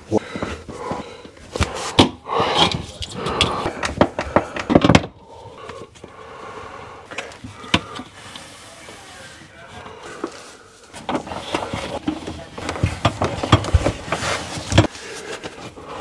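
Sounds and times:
clothing rustle: 8.1 - 15.8.

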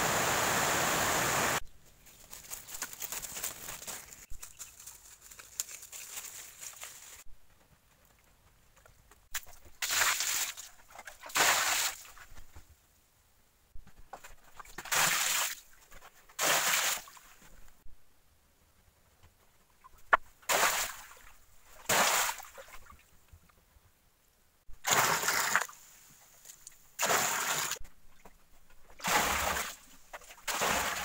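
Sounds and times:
water pouring and splashing: 9.4 - 12.2, 14.4 - 17.4, 24.8 - 25.8, 27.0 - 27.8, 29.0 - 31.0.

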